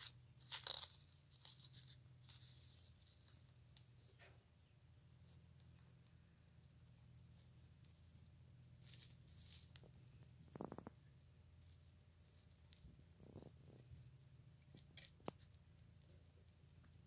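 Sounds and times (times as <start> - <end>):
rustling of straw bedding: 0.0 - 4.4, 6.8 - 13.9
low steady hum: 0.0 - 17.0.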